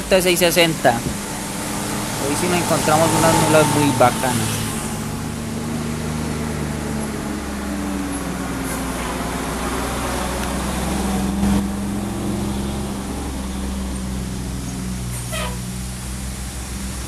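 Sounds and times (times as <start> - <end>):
tyres hissing on wet pavement: 0.0 - 5.6
truck engine drone: 0.0 - 17.0.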